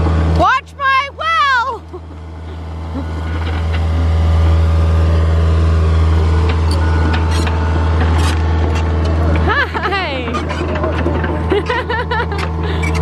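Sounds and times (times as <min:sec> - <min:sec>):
excavator diesel engine droning: 0:00.0 - 0:13.0.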